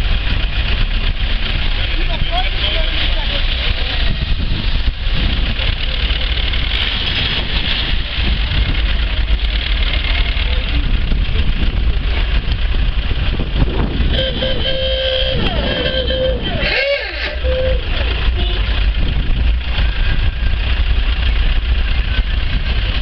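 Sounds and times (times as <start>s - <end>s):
low microphone rumble: 0.0s - 23.0s
vehicles and crowd rumble: 0.0s - 23.0s
held horn tone: 13.9s - 19.1s.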